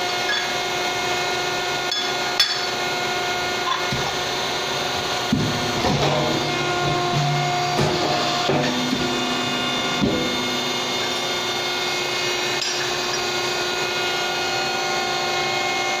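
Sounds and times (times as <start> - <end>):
machine motor hum: 0.0 - 16.0.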